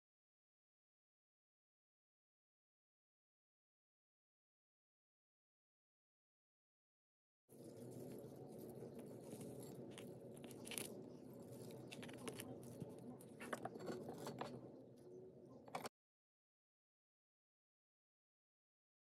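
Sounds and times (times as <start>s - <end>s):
fingertips rubbing plastic toy ball: 7.6s - 14.6s.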